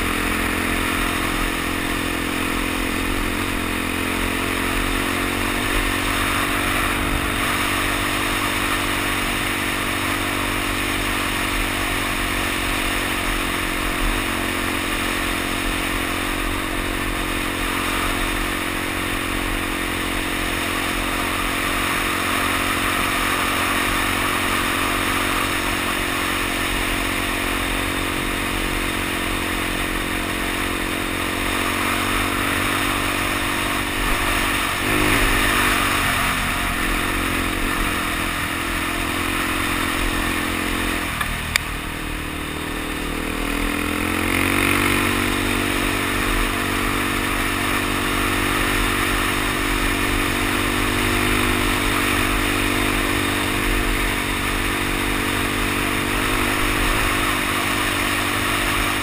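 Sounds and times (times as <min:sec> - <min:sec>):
motorcycle engine cruising: 0:00.0 - 0:59.0.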